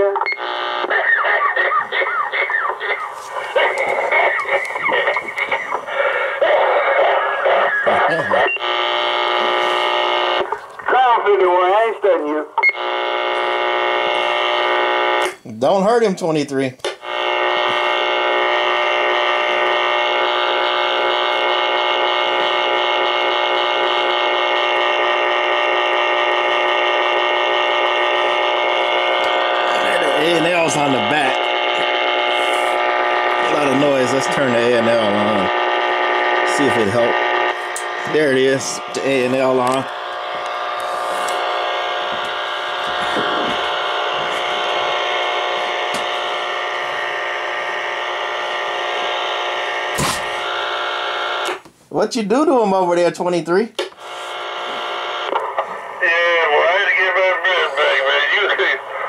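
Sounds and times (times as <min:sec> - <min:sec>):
radio speaker whine of several tones: 0:00.0 - 0:15.4, 0:16.9 - 0:51.6, 0:53.8 - 0:59.0.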